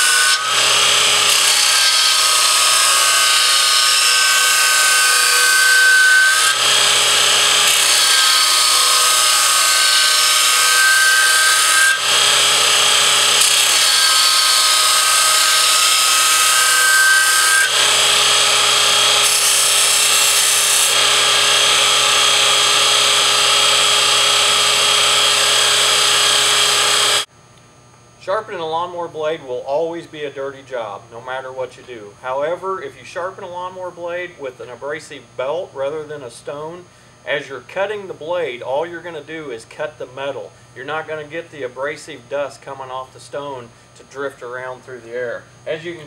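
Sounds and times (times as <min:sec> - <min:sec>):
belt grinder grinding steel: 0:00.0 - 0:27.3.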